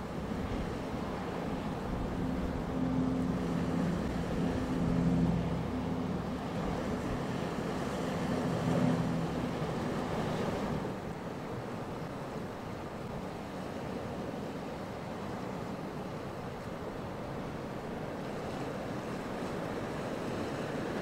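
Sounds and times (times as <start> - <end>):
motorboat engine humming: 0.0 - 14.5
choppy sea washing: 0.0 - 21.0.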